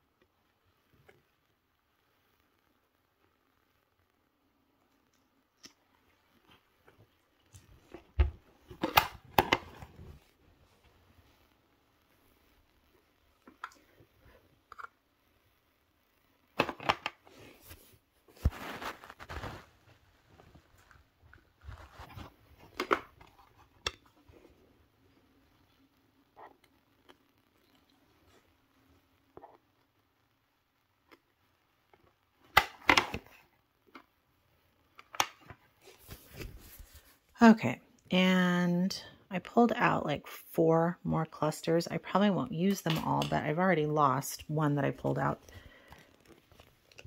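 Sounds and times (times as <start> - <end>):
rustling scrape: 17.3 - 20.9.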